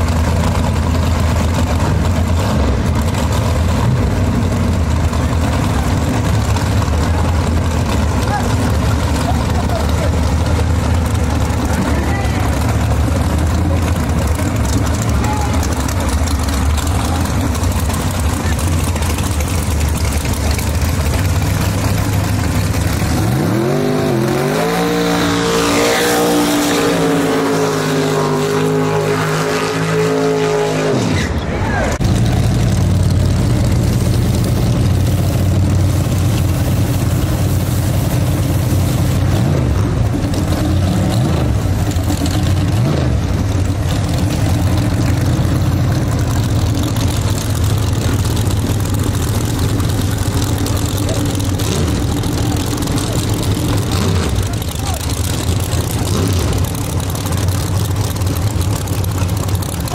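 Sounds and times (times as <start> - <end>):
car engine idling loudly: 0.0 - 30.4, 31.1 - 59.9.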